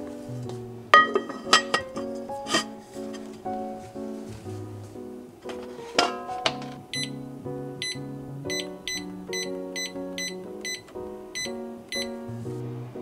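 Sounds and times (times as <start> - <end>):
plucked-string melody: 0.0 - 13.0
high ticking beat: 6.9 - 7.2, 7.8 - 12.2.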